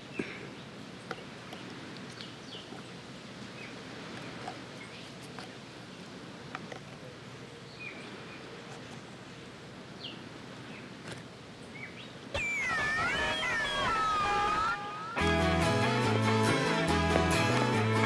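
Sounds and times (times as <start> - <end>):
wavering animal cry: 12.3 - 15.3
short chirps: 12.4 - 15.2
plucked guitar music: 12.4 - 18.0.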